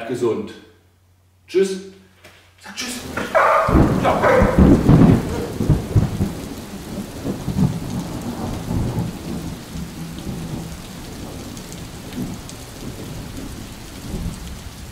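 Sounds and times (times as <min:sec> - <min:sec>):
rain falling: 0:02.7 - 0:14.9
rolling thunder: 0:03.0 - 0:14.9.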